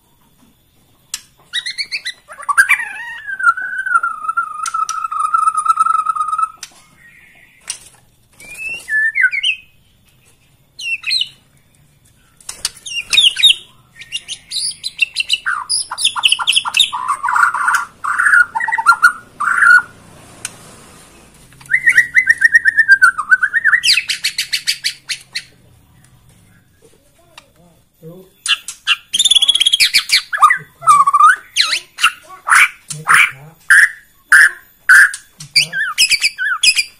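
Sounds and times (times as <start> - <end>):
bird singing whistled phrases: 1.5 - 7.6, 8.4 - 9.8, 10.8 - 11.4, 12.8 - 19.9, 21.7 - 25.5, 28.4 - 36.9.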